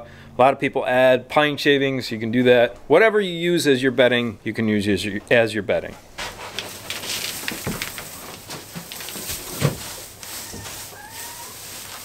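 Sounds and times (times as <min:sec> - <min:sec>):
dull thumps: 0:06.1 - 0:11.0
straw rustling and crackling: 0:06.2 - 0:12.0.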